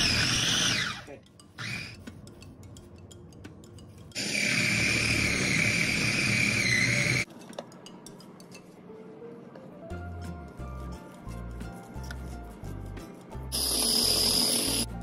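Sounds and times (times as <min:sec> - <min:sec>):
food processor motor running: 0:00.0 - 0:01.9, 0:04.2 - 0:07.2, 0:13.6 - 0:14.9.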